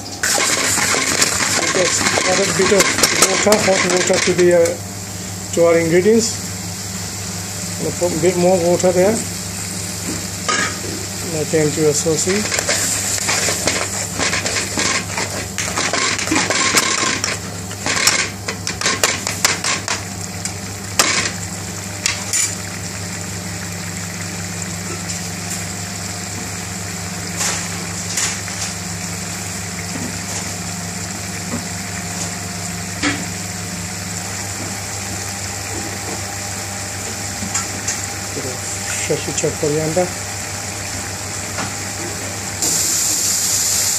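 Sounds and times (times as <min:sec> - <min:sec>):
sauce simmering and bubbling: 0:12.4 - 0:38.3.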